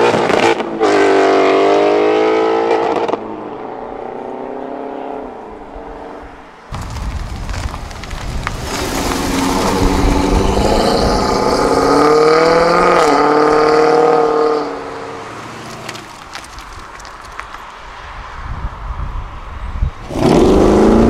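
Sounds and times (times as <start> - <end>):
car engine accelerating hard: 8.7 - 14.9, 20.0 - 21.0.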